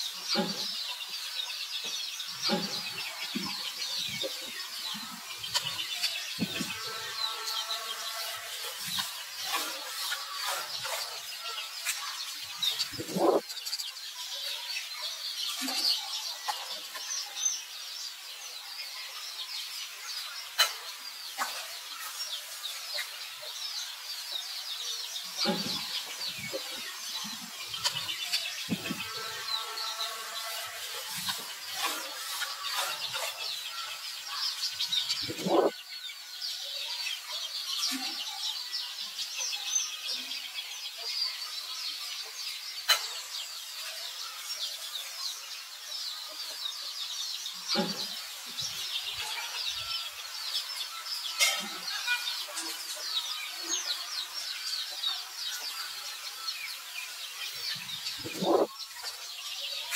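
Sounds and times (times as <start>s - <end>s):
birds chirping: 0.0s - 59.9s
drawn-out pitched call: 35.2s - 35.7s, 58.2s - 58.7s.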